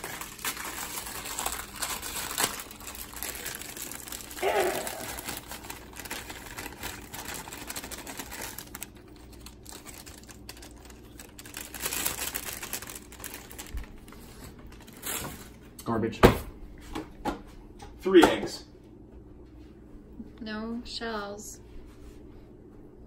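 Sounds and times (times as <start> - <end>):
plastic bag crinkling: 0.0 - 15.6.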